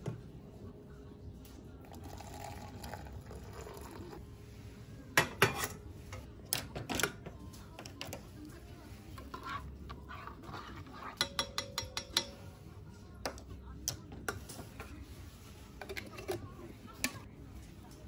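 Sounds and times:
hot water pouring into metal mug: 1.9 - 4.2
spoon stirring in metal mug: 5.2 - 6.2, 7.7 - 17.3.

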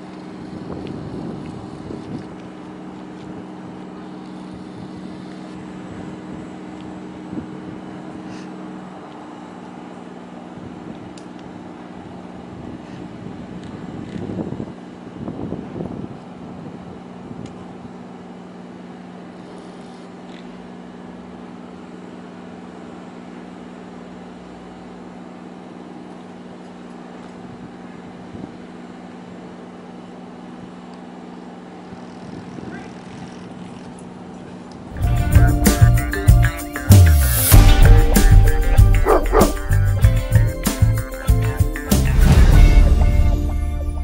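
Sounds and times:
vehicle engine idling: 0.0 - 13.8, 31.8 - 44.0
outdoor background noise: 0.0 - 44.0.

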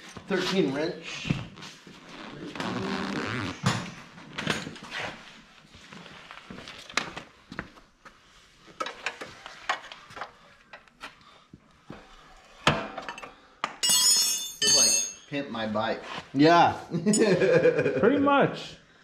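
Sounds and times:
metal tools clinking on concrete: 13.0 - 15.4.

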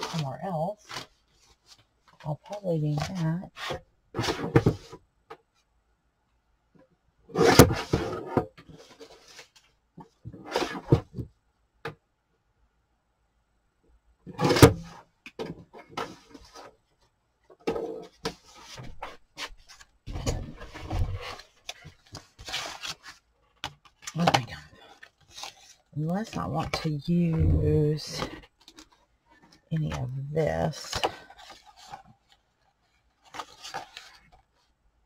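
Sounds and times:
paper rustling: 18.2 - 29.6, 30.7 - 34.7.

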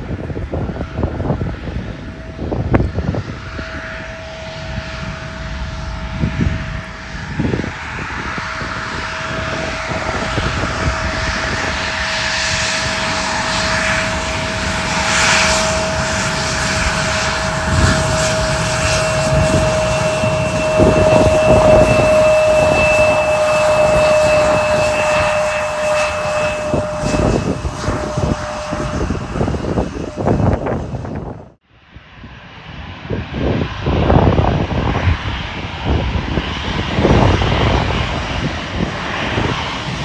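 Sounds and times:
higher-pitched whine: 0.0 - 31.6
jet engines whining: 0.0 - 31.6, 32.4 - 40.0.

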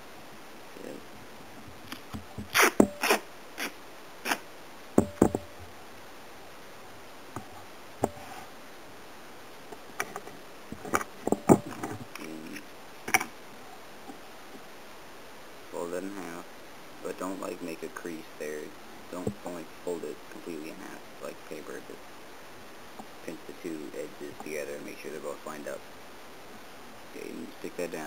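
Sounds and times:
duct tape crackling: 1.7 - 4.4, 9.7 - 13.4.

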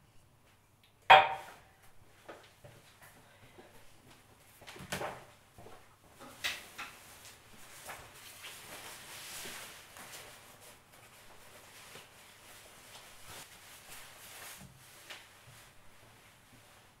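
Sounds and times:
jacket rustling: 7.0 - 17.0.

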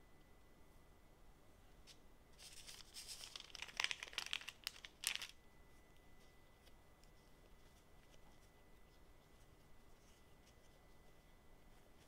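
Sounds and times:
baking parchment crinkling: 2.4 - 5.4.

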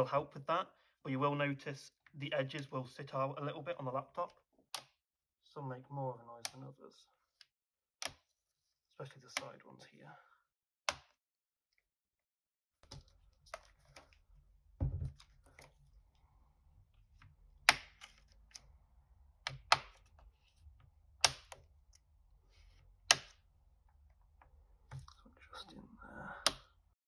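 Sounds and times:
plastic clips snapping loose: 21.2 - 21.6, 23.1 - 23.4.

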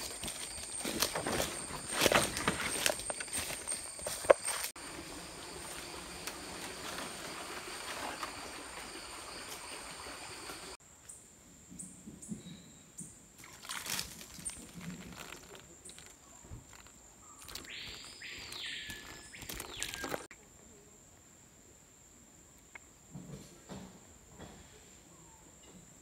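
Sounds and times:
footsteps in dry leaves: 0.0 - 8.4, 13.4 - 20.3
insects whining: 0.0 - 10.8, 13.9 - 20.3.

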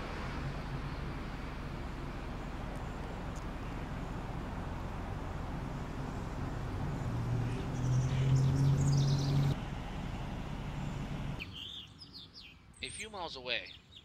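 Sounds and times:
low traffic rumble: 0.0 - 14.0
faint bird chirps: 10.8 - 14.0.

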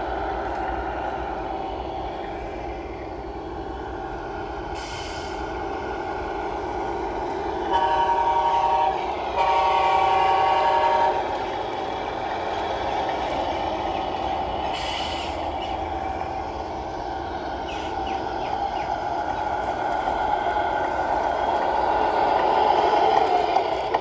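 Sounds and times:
electronic diesel engine sound: 0.0 - 24.0
short hiss: 4.8 - 5.4
truck horn tones: 7.7 - 11.3.

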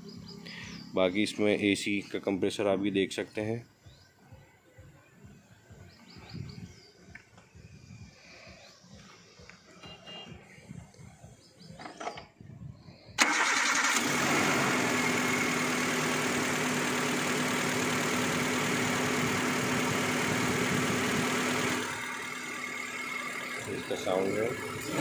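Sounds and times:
car engine idling: 13.2 - 25.0.

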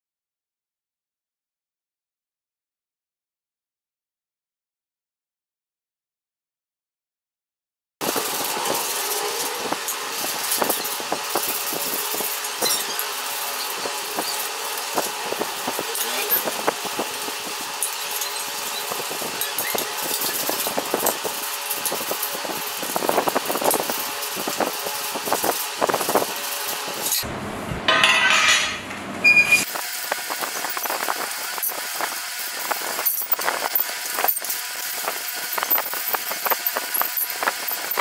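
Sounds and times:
sandpaper rasping on metal: 8.0 - 27.2.

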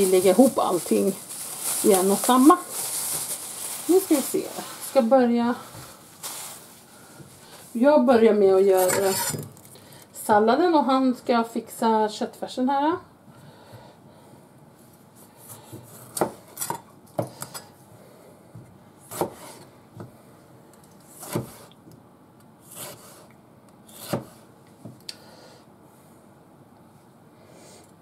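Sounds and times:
knife chopping on cutting board: 15.7 - 17.6, 19.1 - 20.1, 21.1 - 21.7, 23.9 - 24.4.

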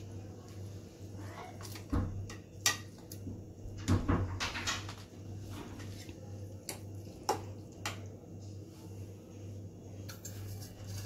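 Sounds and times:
low steady hum: 0.0 - 11.0
spoon mixing yogurt: 9.9 - 11.0.

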